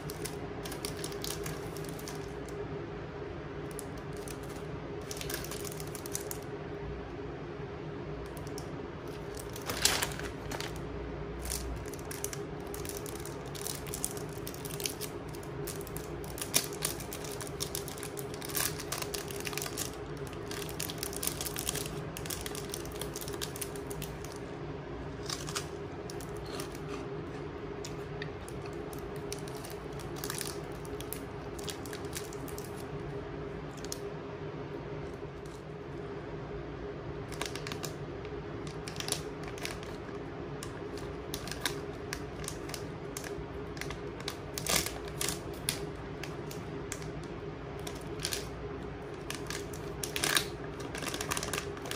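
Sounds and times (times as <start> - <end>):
plastic wrappers crinkling: 0.0 - 2.6, 3.7 - 6.4, 8.3 - 24.5, 25.1 - 32.9, 37.3 - 38.0, 38.6 - 51.9
steady low hum: 0.0 - 51.9.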